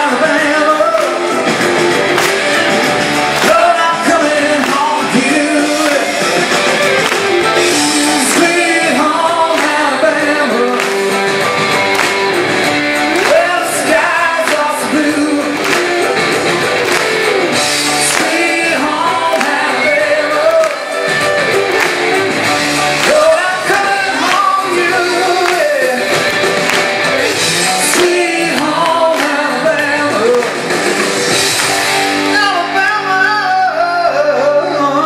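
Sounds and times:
man singing into microphone: 0:00.0 - 0:01.4, 0:03.4 - 0:06.6, 0:07.6 - 0:11.6, 0:13.1 - 0:16.1, 0:17.9 - 0:21.2, 0:23.0 - 0:26.2, 0:27.7 - 0:30.9, 0:32.2 - 0:35.0
band accompaniment: 0:00.0 - 0:35.0.

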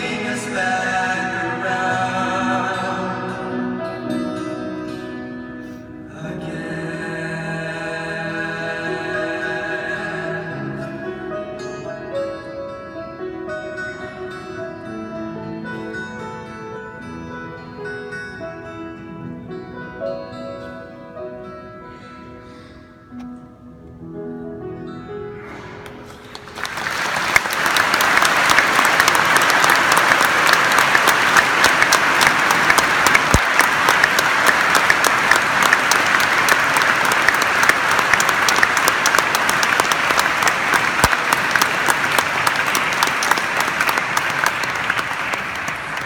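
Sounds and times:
crowd applauding: 0:25.8 - 0:46.0.

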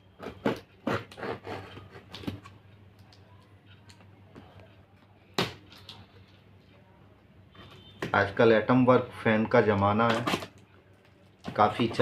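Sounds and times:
scissors scratching tape: 0:00.2 - 0:02.3.

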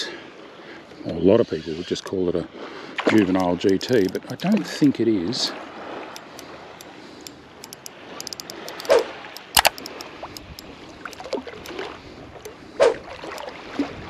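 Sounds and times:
water lapping: 0:00.0 - 0:14.0
faint ticking: 0:03.3 - 0:04.9, 0:06.1 - 0:11.7.

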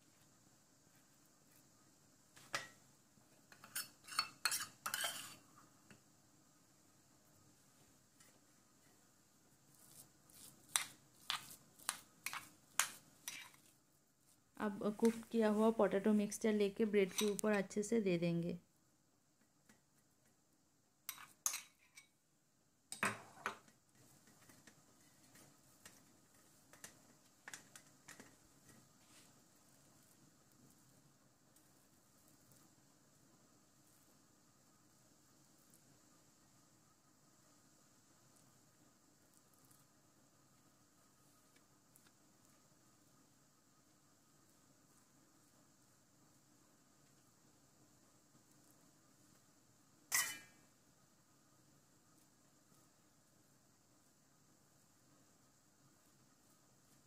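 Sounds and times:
metal spoon clinking on steel plate: 0:03.5 - 0:05.4, 0:17.0 - 0:17.5, 0:21.1 - 0:22.1, 0:50.1 - 0:50.6
knife clinking on steel plate: 0:17.1 - 0:17.4, 0:50.1 - 0:50.6.

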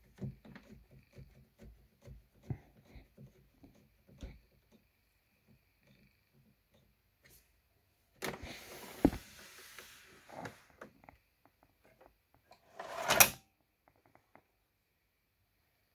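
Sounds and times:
rubbing and scraping: 0:12.5 - 0:13.4.

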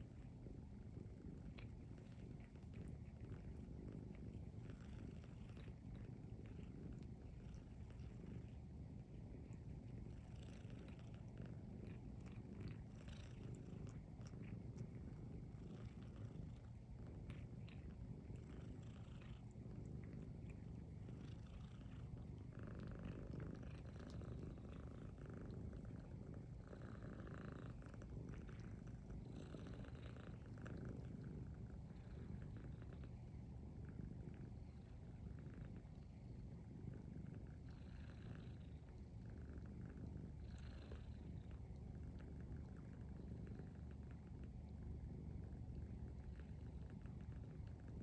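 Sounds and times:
cats purring: 0:00.0 - 0:48.0
soft licking clicks: 0:01.4 - 0:33.3.

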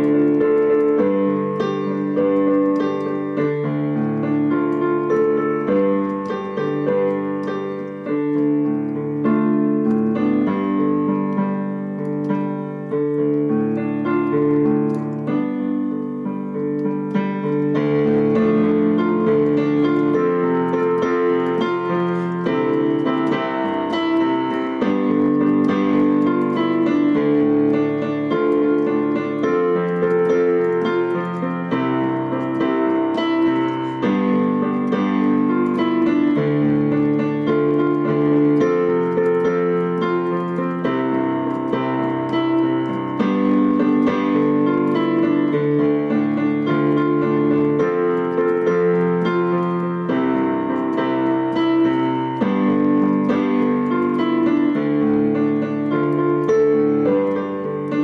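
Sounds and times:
digital piano chords and melody: 0:00.0 - 0:58.0.

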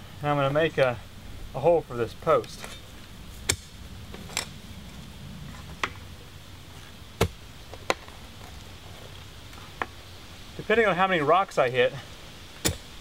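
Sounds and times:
post hole digger striking dirt: 0:03.4 - 0:04.5, 0:07.2 - 0:08.1, 0:12.6 - 0:13.0.

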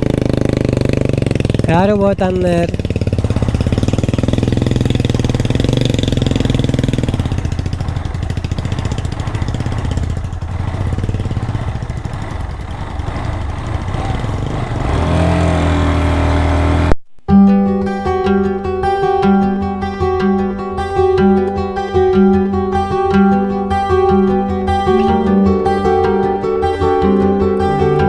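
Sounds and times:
motorcycle engine revving under load: 0:00.0 - 0:17.0.

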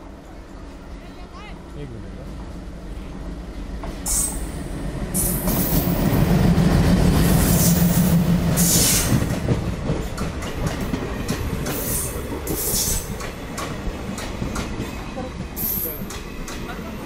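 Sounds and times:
diesel locomotive engine drone: 0:00.0 - 0:17.0
train wheels clicking over rail joints: 0:05.1 - 0:17.0.

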